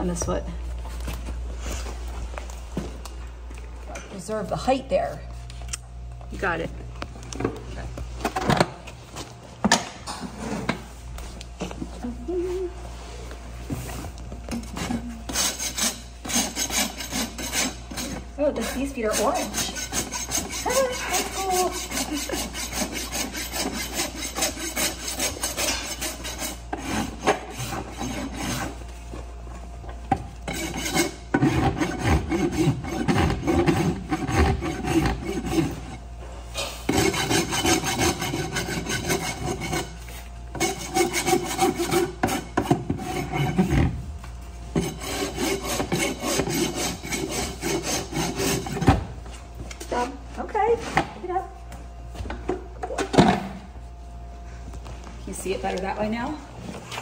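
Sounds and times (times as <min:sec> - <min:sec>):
hoof rasp filing a hoof: 0:14.5 - 0:28.8, 0:30.4 - 0:44.0, 0:44.7 - 0:49.0.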